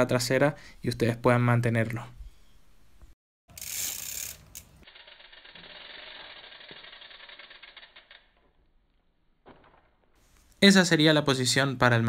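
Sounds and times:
bike freehub ratchet clicking: 3.5 - 8.7.

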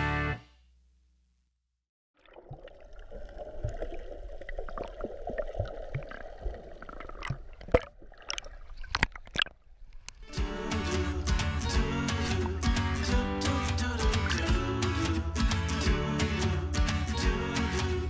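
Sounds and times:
muffled underwater churning: 2.2 - 10.2.

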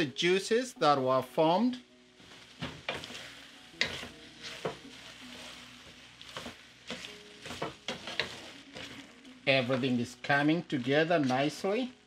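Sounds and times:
meat sizzling in a pot: 0.0 - 12.0
wooden spoon scraping pot: 2.8 - 5.6, 6.2 - 9.9.

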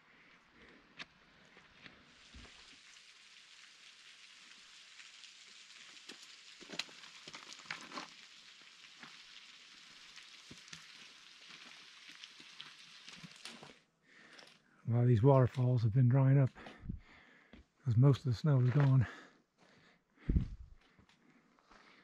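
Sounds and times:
faint hiss: 1.9 - 7.0
footsteps on gravel: 18.5 - 19.2, 20.3 - 21.1.

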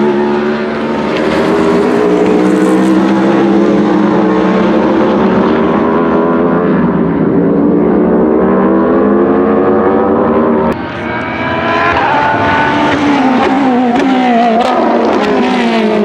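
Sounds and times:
racing car engines accelerating: 0.0 - 16.0
racing car passing at speed: 0.0 - 16.0.

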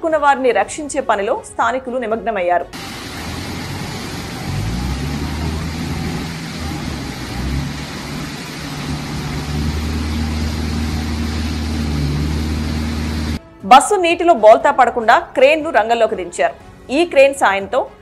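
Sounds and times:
floodwater rushing: 2.8 - 13.4
vehicle engine running: 2.8 - 13.4.

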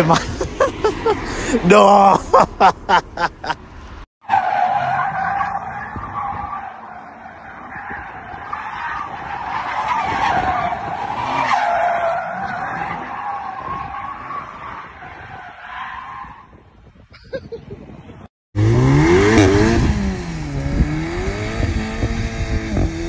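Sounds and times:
car tyres squealing: 0.0 - 16.6.

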